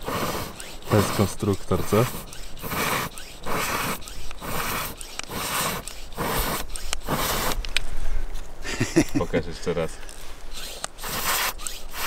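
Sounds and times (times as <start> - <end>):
hand pump air strokes: 0.0 - 7.9, 10.4 - 12.0.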